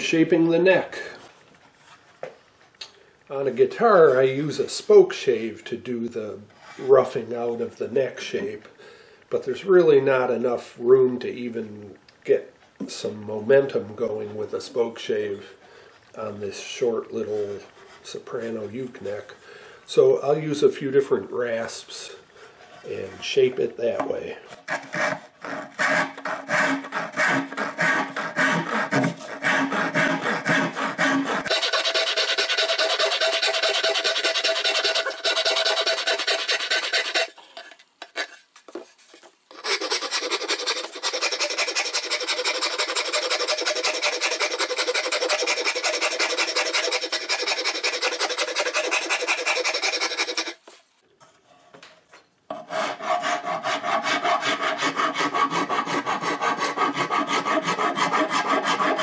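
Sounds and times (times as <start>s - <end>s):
hand rasp rasping wood: 24.7s - 37.4s, 39.5s - 50.8s, 52.6s - 59.0s.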